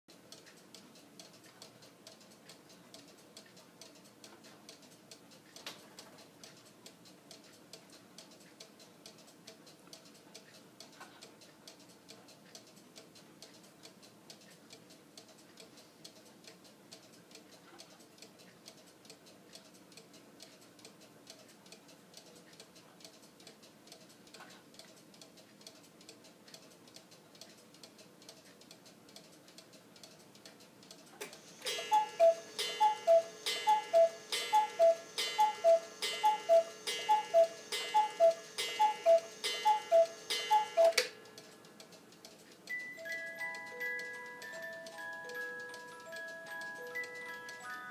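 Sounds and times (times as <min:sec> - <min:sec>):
clock mechanism clack: 0:00.1 - 0:42.9
clock ticking: 0:00.1 - 0:47.9
two-note cuckoo call: 0:31.7 - 0:41.2.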